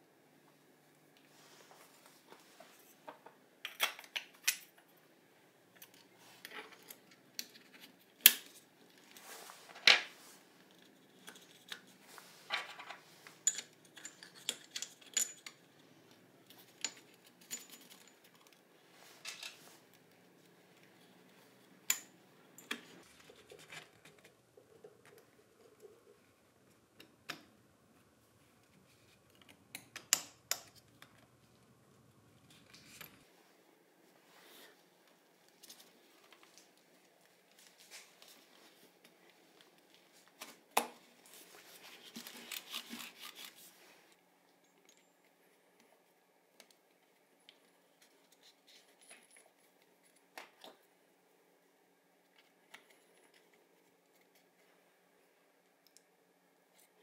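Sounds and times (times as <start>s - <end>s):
metal tools clicking and clinking: 13.4s - 15.6s, 16.6s - 18.6s.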